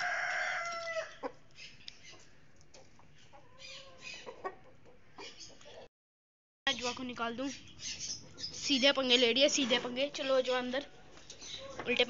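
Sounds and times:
rooster crowing: 0.0s - 1.2s.

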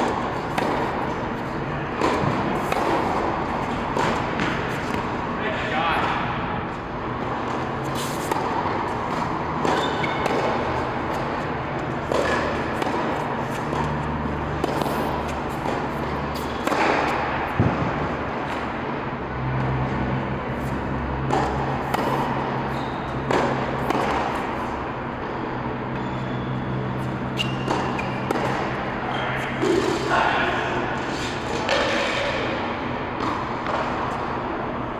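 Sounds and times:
tennis balls struck and bouncing: 0.0s - 5.4s, 6.0s - 34.9s
low hum in hall: 0.0s - 34.9s.

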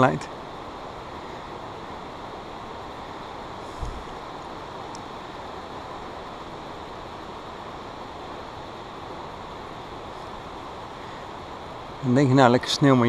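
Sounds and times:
wind rushing: 3.6s - 4.4s.

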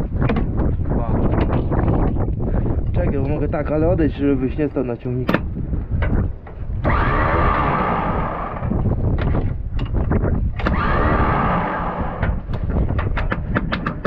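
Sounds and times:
starter motor cranking diesel engine: 6.8s - 8.8s.

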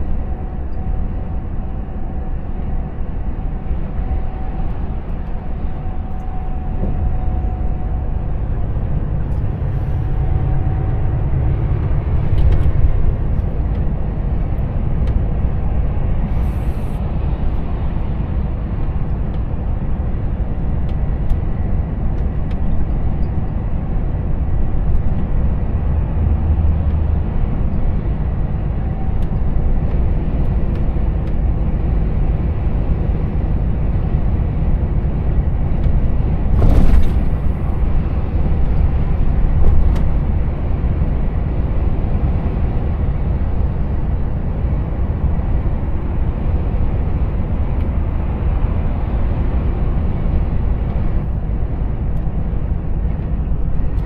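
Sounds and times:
truck diesel engine drone: 0.0s - 54.0s
tyre and road noise: 34.6s - 42.0s
brief rush of noise: 36.6s - 37.8s.

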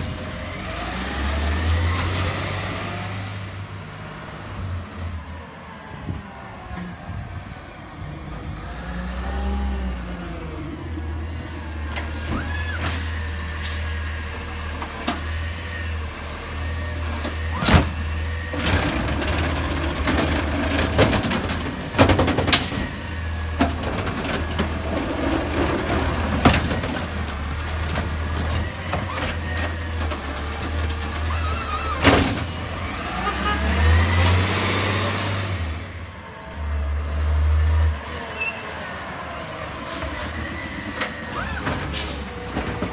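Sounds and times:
garbage truck engine running: 8.4s - 37.0s
cart banging against hopper: 18.6s - 32.8s.

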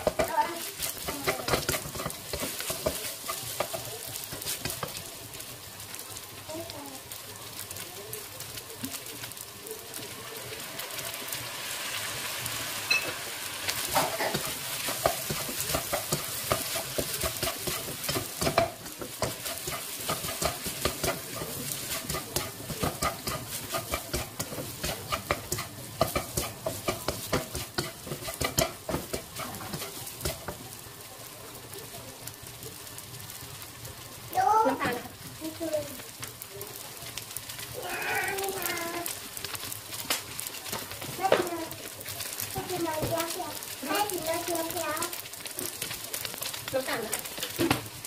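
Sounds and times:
spatula scraping a pan: 0.0s - 5.1s, 12.6s - 30.6s
rice sizzling in a frying pan: 0.0s - 48.0s.

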